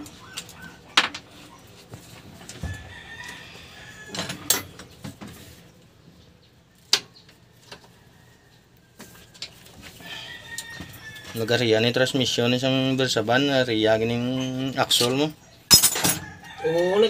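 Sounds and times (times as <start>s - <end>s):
rooster crowing: 2.5s - 4.8s, 9.9s - 11.6s, 16.1s - 17.0s.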